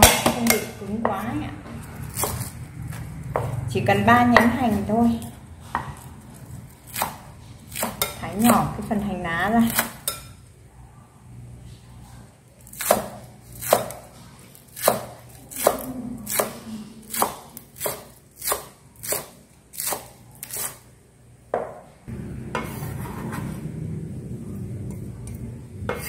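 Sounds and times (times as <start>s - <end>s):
knife chopping on wooden board: 12.7s - 14.1s, 14.8s - 20.8s.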